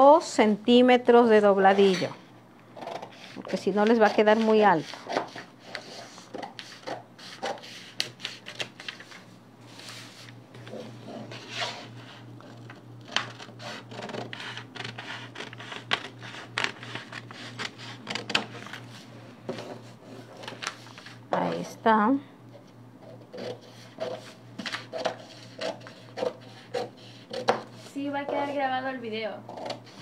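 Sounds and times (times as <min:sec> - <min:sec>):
steady low hum: 0:00.0 - 0:30.0
scissors snipping paper: 0:02.8 - 0:09.0, 0:12.4 - 0:18.8, 0:23.3 - 0:27.6
paper rustling: 0:07.4 - 0:21.6, 0:24.0 - 0:26.5.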